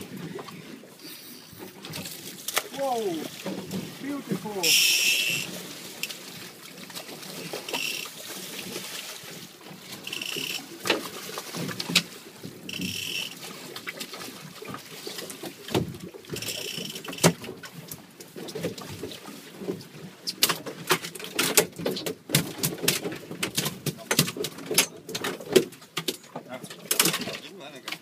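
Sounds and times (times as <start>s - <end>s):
wind: 0.0s - 28.0s
water wash: 1.0s - 17.6s
short high buzzes: 4.7s - 5.5s, 12.7s - 13.3s.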